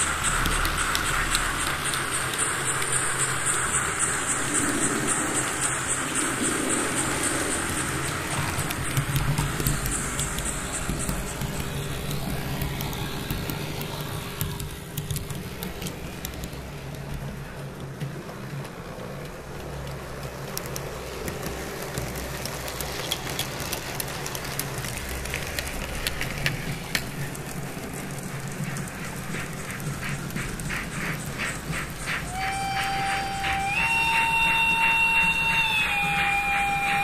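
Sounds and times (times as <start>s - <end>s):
model train wheels clicking: 0.0s - 37.0s
electric motor hum: 5.6s - 17.7s.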